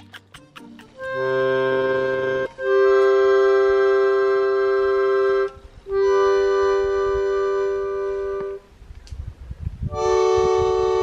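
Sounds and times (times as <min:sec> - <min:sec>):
accordion chords: 0:00.0 - 0:08.7, 0:09.9 - 0:11.0.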